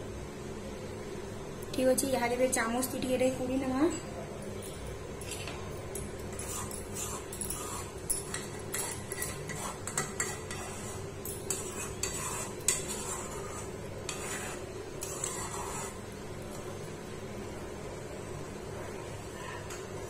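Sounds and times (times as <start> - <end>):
metal spoon scraping a pan: 6.3 - 16.1.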